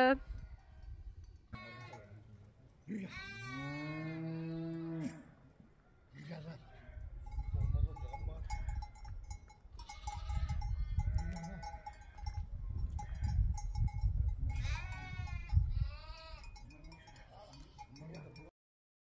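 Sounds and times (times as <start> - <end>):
sheep bleating: 1.5 - 2.2, 2.9 - 5.4, 9.8 - 12.3, 14.6 - 17.9.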